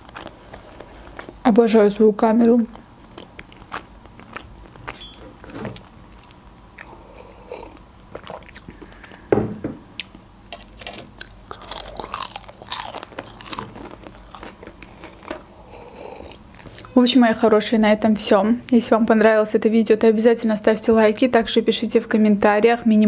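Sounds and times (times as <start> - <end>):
crispy pastry crunching: 0.0 - 5.0, 10.0 - 17.0
wet chewing: 2.5 - 9.3, 10.0 - 16.9.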